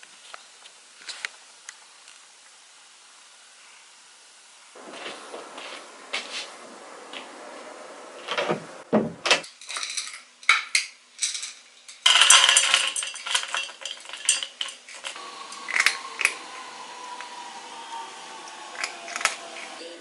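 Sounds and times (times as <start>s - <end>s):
kibble rattling into metal bowl: 9.5s - 16.4s.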